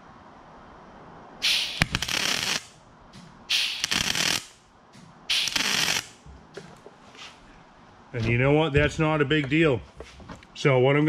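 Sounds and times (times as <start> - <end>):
welding arc crackle and hiss: 1.4 - 4.6, 5.3 - 6.2.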